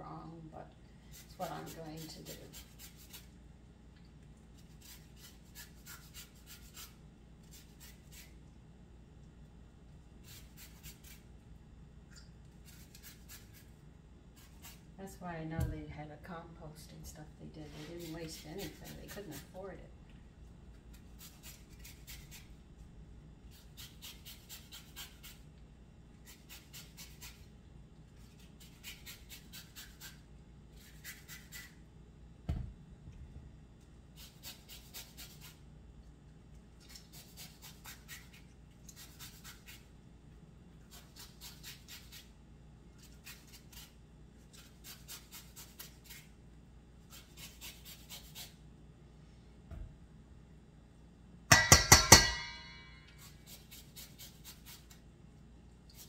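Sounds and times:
lemon rasping on grater: 0:01.1 - 0:03.3, 0:04.6 - 0:08.4, 0:10.2 - 0:11.2, 0:12.6 - 0:13.7, 0:17.7 - 0:19.6, 0:20.9 - 0:22.5, 0:23.5 - 0:25.4, 0:26.2 - 0:27.5, 0:28.2 - 0:31.7, 0:34.2 - 0:35.6, 0:36.8 - 0:39.9, 0:40.8 - 0:42.3, 0:43.0 - 0:46.3, 0:47.0 - 0:48.6, 0:53.1 - 0:55.0.

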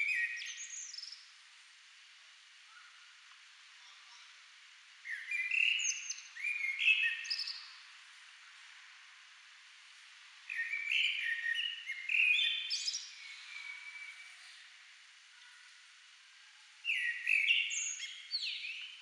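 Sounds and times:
blackbird singing: 0:00.0 - 0:01.2, 0:05.0 - 0:07.8, 0:10.5 - 0:14.4, 0:16.8 - 0:19.0.

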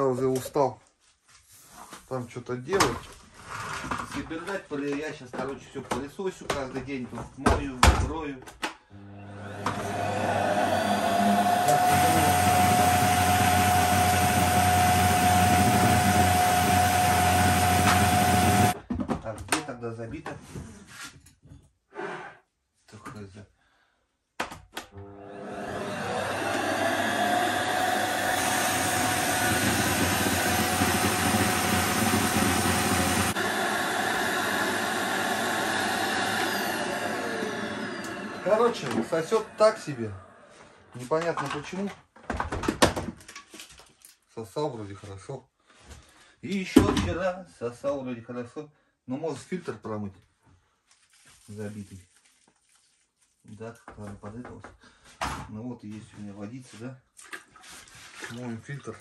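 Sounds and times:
vacuum cleaner running: 0:09.0 - 0:18.8, 0:25.0 - 0:40.9.

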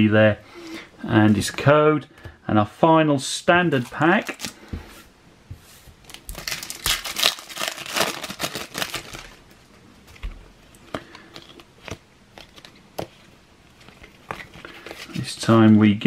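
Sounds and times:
foil wrapper crinkling: 0:06.1 - 0:09.5
cards clicking and rustling: 0:10.1 - 0:15.6.

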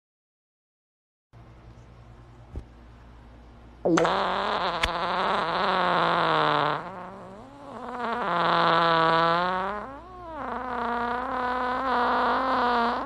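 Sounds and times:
fart sound effects: 0:03.9 - 0:13.0.

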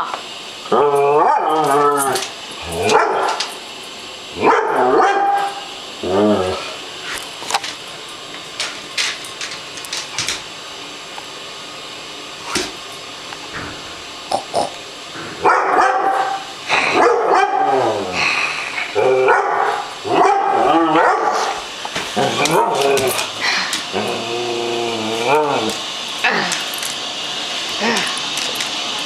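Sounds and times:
dog barking and whining: 0:00.6 - 0:03.6, 0:04.3 - 0:06.8, 0:15.4 - 0:18.2, 0:18.9 - 0:26.5.

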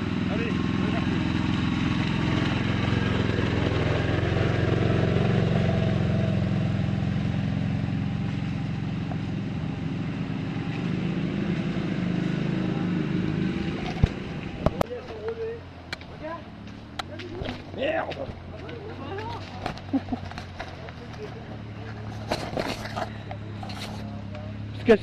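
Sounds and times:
quad bike engine running: 0:00.0 - 0:25.0.

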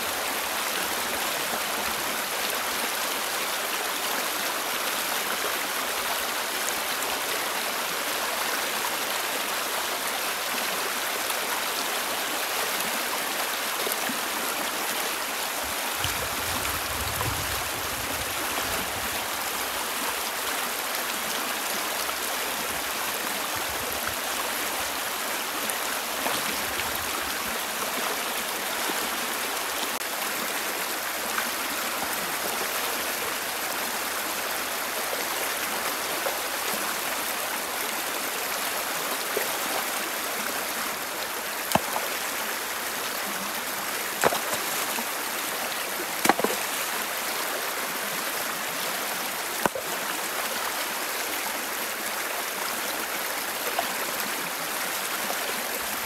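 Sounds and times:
river rushing over stones: 0:00.0 - 0:56.0
rocks knocking in water: 0:41.7 - 0:42.1, 0:44.2 - 0:45.0, 0:46.2 - 0:46.8.

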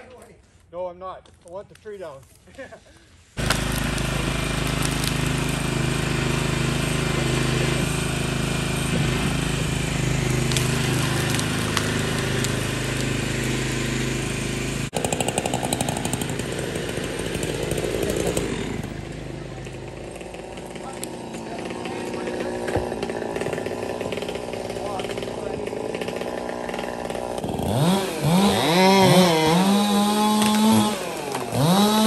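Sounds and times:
engine rattle: 0:03.4 - 0:25.6
lawn mower engine running: 0:03.4 - 0:32.0.

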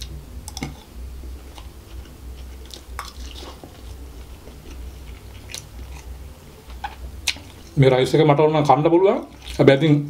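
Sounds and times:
chewing: 0:01.5 - 0:07.8, 0:09.2 - 0:09.6.

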